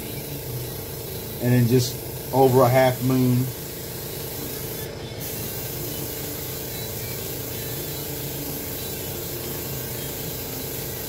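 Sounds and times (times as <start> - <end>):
airbrush spraying hiss: 0.0 - 11.0.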